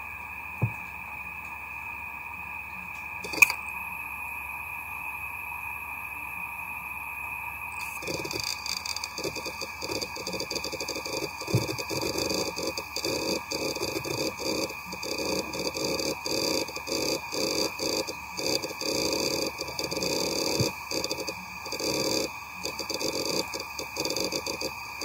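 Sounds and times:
hard drive platter whine: 0.0s - 25.0s
hard drive heads chattering: 3.2s - 3.6s, 7.8s - 25.0s
sharp hard drive click: 3.2s - 3.6s, 7.8s - 25.0s.

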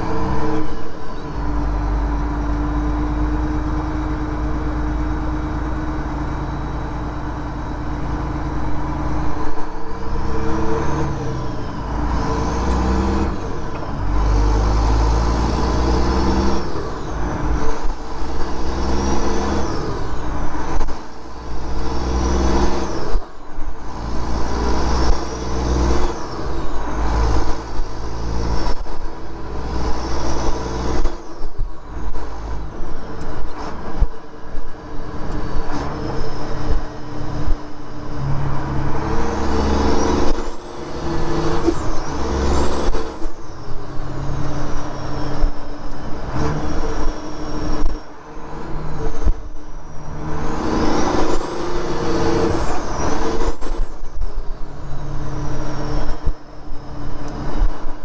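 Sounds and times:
truck engine accelerating: 0.0s - 58.0s.

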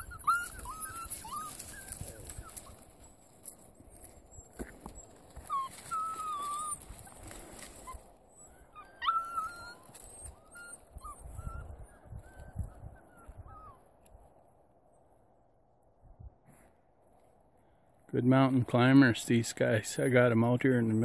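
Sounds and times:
puppy yelping: 0.0s - 3.3s, 4.3s - 13.9s
puppies whining: 0.0s - 14.1s.

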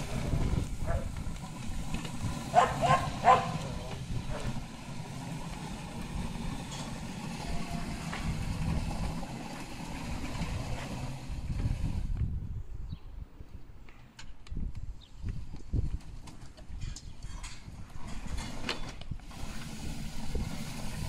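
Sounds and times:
sweeper robot rumbling on concrete: 0.0s - 12.8s, 16.7s - 21.0s
dog barking: 2.5s - 3.6s.

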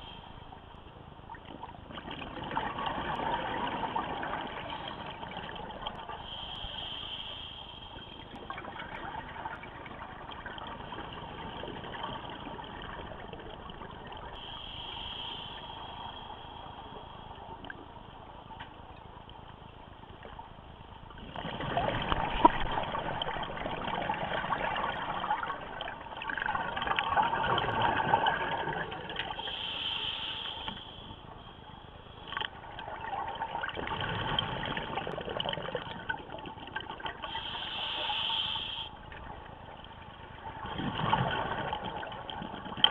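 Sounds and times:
bubbles gurgling: 1.4s - 6.2s, 8.3s - 14.4s, 21.2s - 29.5s, 32.6s - 37.6s, 40.2s - 42.9s
regulator hiss on inhalation: 6.2s - 8.3s, 14.4s - 17.3s, 29.4s - 31.3s, 37.2s - 39.0s.

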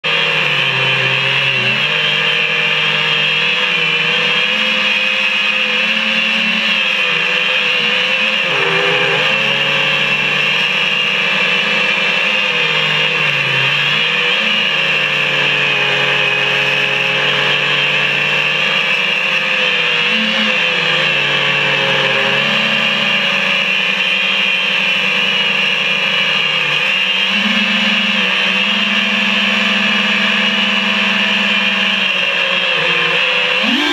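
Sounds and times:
drone motors and propellers whining: 0.0s - 33.9s.

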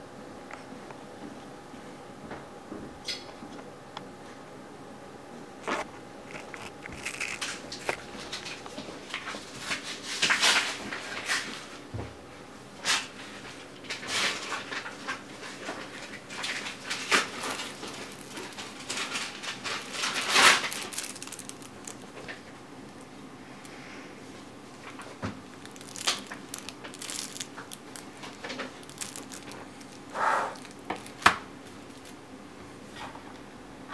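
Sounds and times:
plastic packaging rustling: 5.6s - 11.7s, 13.2s - 23.7s, 24.7s - 32.2s.

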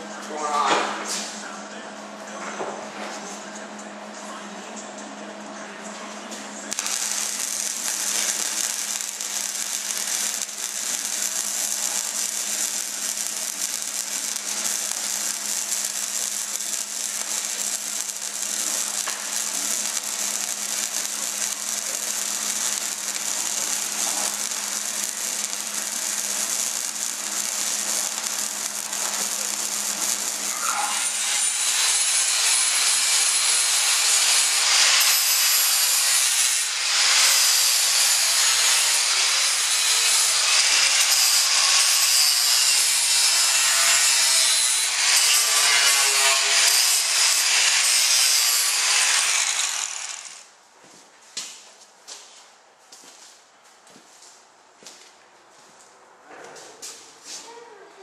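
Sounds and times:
arc welding crackle: 6.6s - 50.5s
angle grinder grinding steel: 6.7s - 50.5s.

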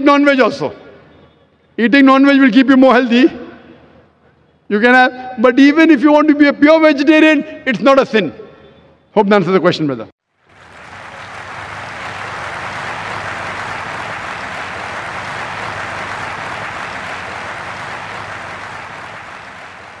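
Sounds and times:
large audience applauding: 10.4s - 20.0s.

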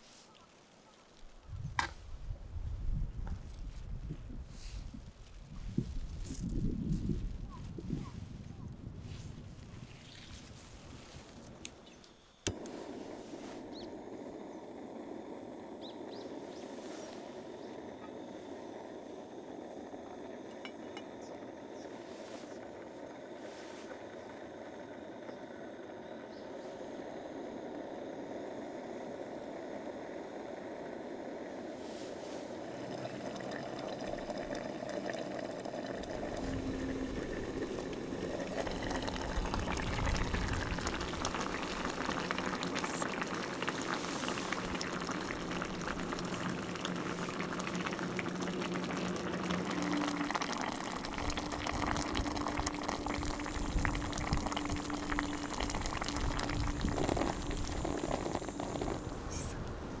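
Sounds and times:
liquid boiling in a pot: 12.5s - 60.0s.

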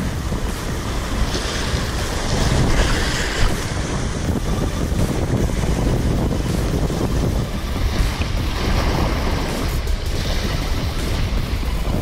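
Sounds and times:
waves washing against jetty: 0.0s - 12.0s
wind buffeting microphone: 0.0s - 12.0s.

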